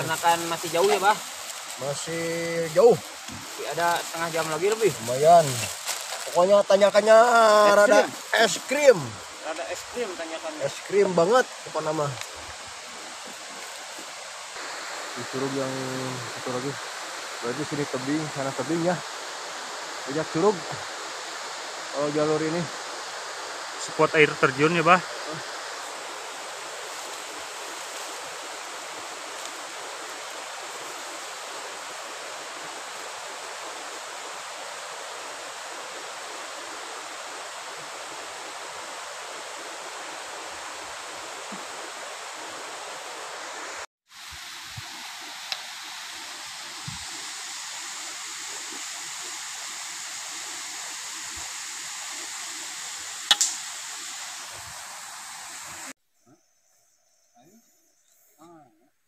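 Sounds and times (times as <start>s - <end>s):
waterfall rushing: 0.0s - 56.0s
sharp click: 53.3s - 53.6s.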